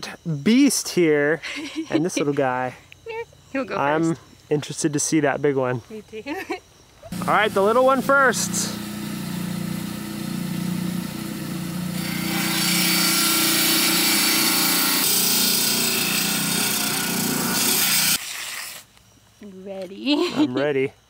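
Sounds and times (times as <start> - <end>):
rock saw motor hum: 7.1 - 18.2
saw grinding into rock: 7.1 - 18.9.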